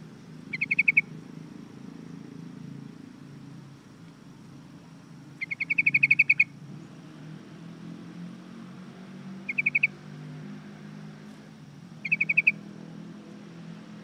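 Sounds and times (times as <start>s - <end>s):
bird chattering call: 0.5s - 1.1s, 5.4s - 6.6s, 9.4s - 10.0s, 12.0s - 12.6s.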